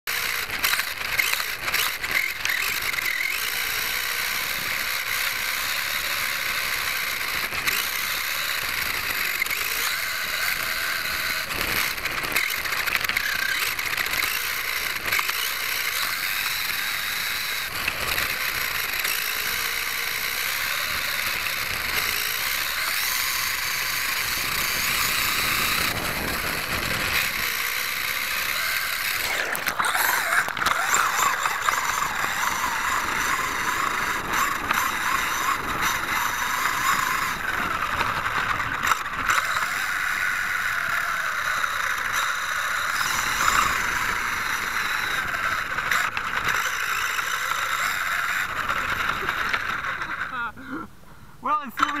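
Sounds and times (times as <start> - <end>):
electric motor whine: 0.1 - 50.4
constant noisy hiss: 17.9 - 52.0.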